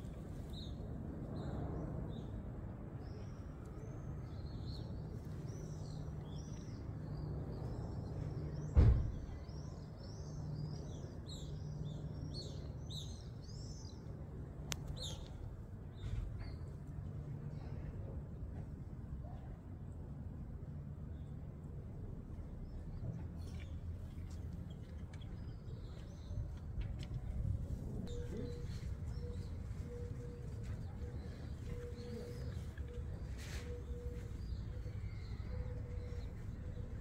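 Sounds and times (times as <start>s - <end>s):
small birds chirping: 3.0s - 16.7s, 22.6s - 37.0s
loud thump: 8.7s - 9.3s.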